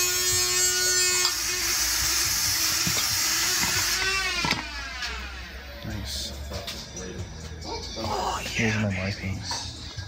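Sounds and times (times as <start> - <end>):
motor whirring: 0.0 - 5.5.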